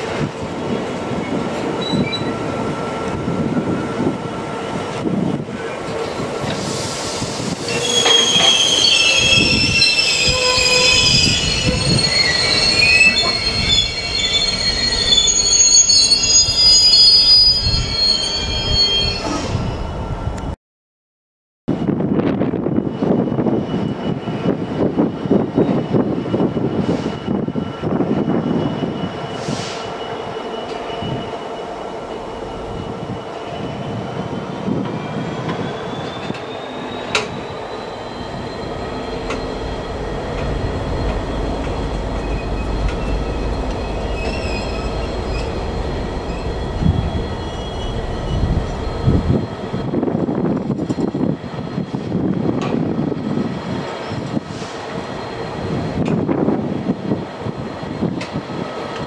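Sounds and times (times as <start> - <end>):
high-pitched wheel squeal: 1.8 - 2.5, 6.8 - 20.2, 22.8 - 50.1.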